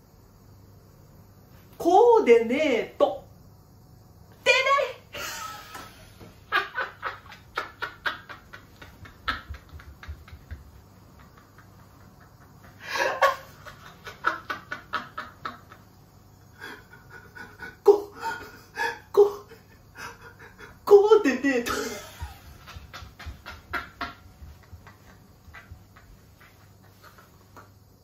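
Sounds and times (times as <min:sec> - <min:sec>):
man laughing: 0:05.2 - 0:15.9, 0:16.6 - 0:19.0, 0:21.6 - 0:27.8.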